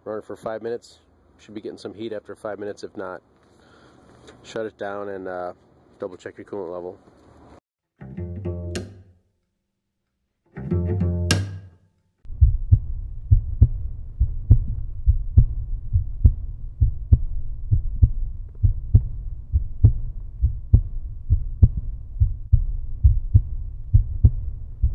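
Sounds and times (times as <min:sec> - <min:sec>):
deep thudding pulse: 0:12.3 - 0:24.9.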